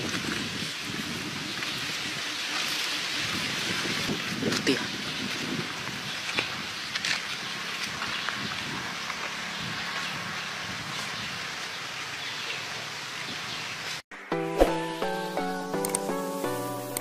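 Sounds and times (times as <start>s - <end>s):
outdoor background hiss: 8.9s - 17.0s.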